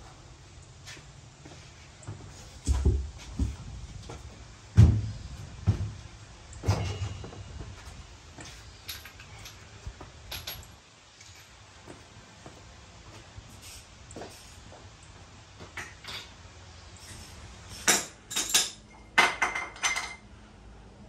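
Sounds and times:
tyre thudding on ground: 0:04.8 - 0:06.0.

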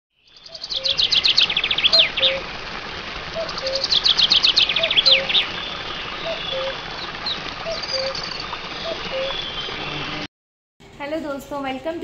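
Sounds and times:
bird singing high trilled phrase: 0:06.2 - 0:06.8, 0:07.7 - 0:09.8.

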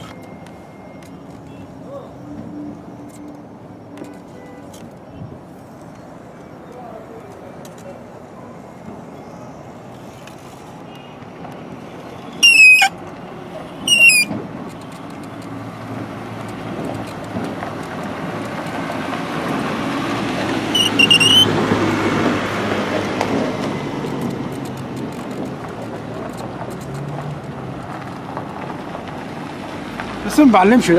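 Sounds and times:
road traffic: 0:00.0 - 0:30.9
short high-pitched squeaks: 0:12.4 - 0:13.0, 0:13.8 - 0:15.0, 0:20.7 - 0:21.6.

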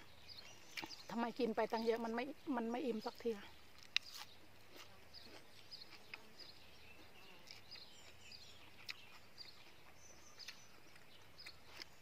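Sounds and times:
faint bird chirps: 0:05.1 - 0:12.0.

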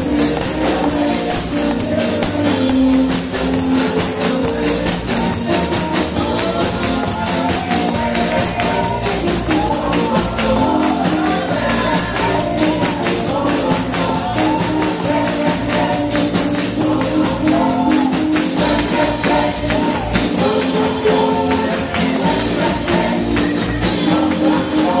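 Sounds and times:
congregation singing gospel song: 0:00.0 - 0:25.0
hands clapping: 0:00.0 - 0:25.0
tambourines jingling: 0:00.0 - 0:25.0.

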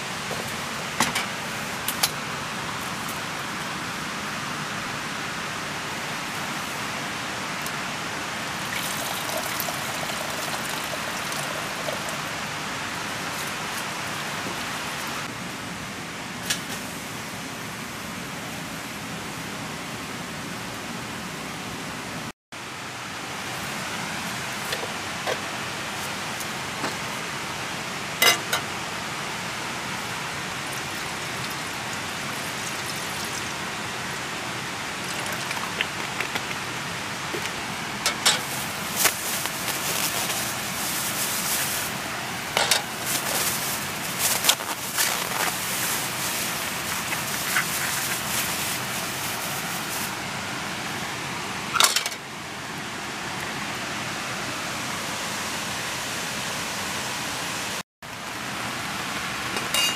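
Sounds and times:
steady rushing hiss: 0:00.0 - 0:19.4, 0:22.6 - 0:51.7
pot clinking on wire grill: 0:28.2 - 0:28.7, 0:59.6 - 0:59.9.

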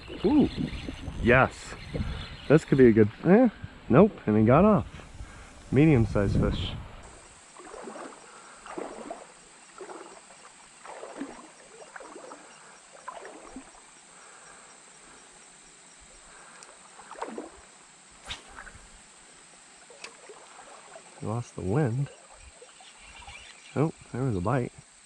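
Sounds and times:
faint steady hiss: 0:00.0 - 0:25.0
water sloshing and splashing: 0:07.1 - 0:14.0, 0:16.7 - 0:17.8, 0:19.8 - 0:23.4.

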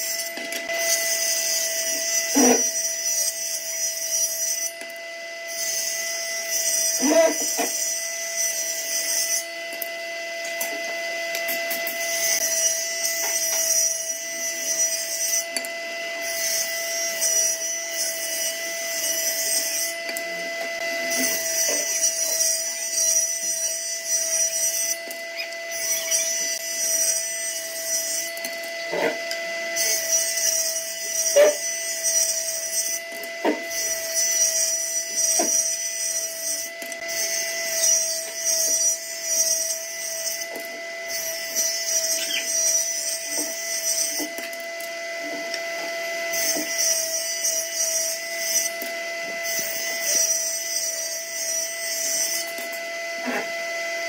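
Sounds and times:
table saw whine: 0:00.0 - 0:54.0
saw cutting wood hiss: 0:01.1 - 0:04.6, 0:41.1 - 0:44.3.

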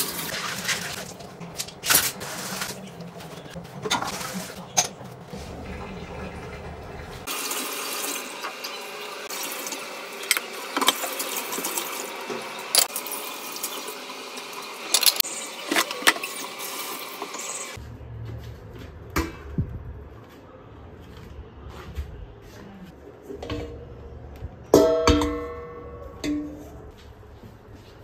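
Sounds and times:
dishes being scrubbed: 0:00.0 - 0:12.0
tap water running into sink: 0:05.4 - 0:17.8
metal pots knocking: 0:24.7 - 0:26.6.

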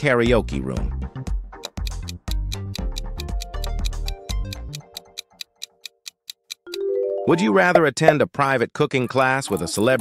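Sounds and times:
quiz countdown music: 0:00.3 - 0:07.9
clock-like ticking: 0:01.6 - 0:06.8.

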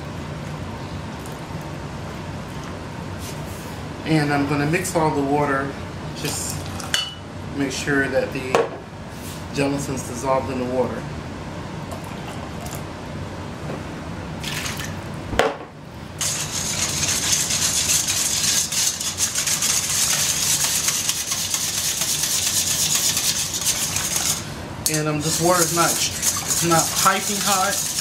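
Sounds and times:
whisk beating in steel bowl: 0:16.2 - 0:28.0.

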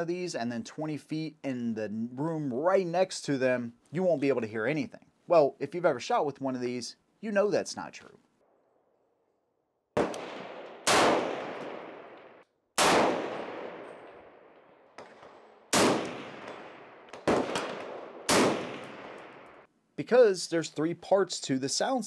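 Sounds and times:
suppressed gunshots: 0:10.0 - 0:19.7.

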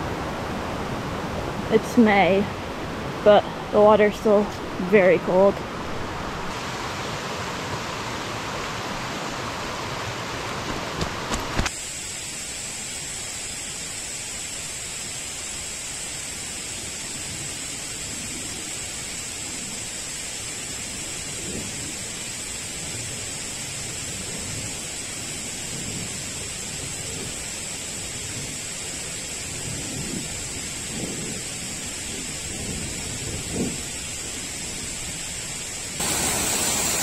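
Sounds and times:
creek water rushing: 0:00.0 - 0:21.4, 0:33.8 - 0:37.0.

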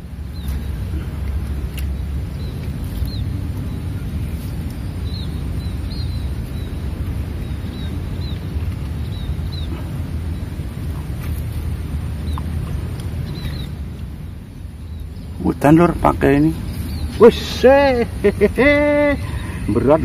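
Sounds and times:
wind buffeting microphone: 0:00.0 - 0:20.0
small bird chirping: 0:01.8 - 0:13.8, 0:14.7 - 0:18.0.

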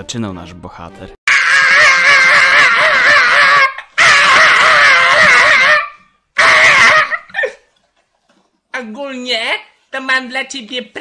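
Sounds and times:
young man screaming: 0:01.3 - 0:07.4.

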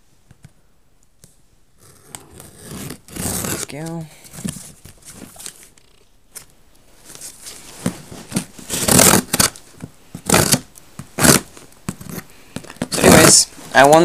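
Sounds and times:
scissors cutting packing tape: 0:08.7 - 0:09.6, 0:10.2 - 0:12.2.

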